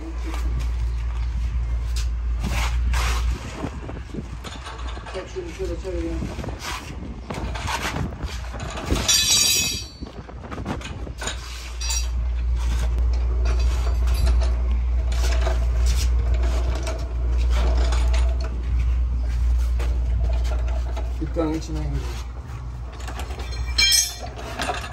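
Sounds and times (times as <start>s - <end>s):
low machinery hum: 0.0s - 24.9s
steel tools clinking and knocking: 8.7s - 10.2s, 11.2s - 12.5s, 13.1s - 16.0s, 22.9s - 24.9s.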